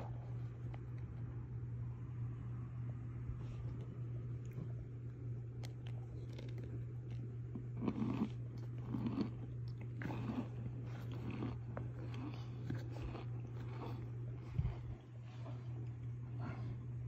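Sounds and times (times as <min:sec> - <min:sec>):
steady low hum: 0:00.0 - 0:17.0
cornstarch chunks crunching: 0:05.4 - 0:14.8.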